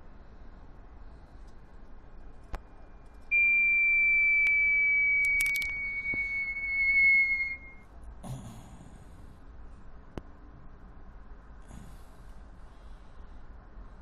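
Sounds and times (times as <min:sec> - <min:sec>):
high whistle-like tone gliding down: 0:03.3 - 0:07.8
sharp clicks: 0:05.2 - 0:06.3.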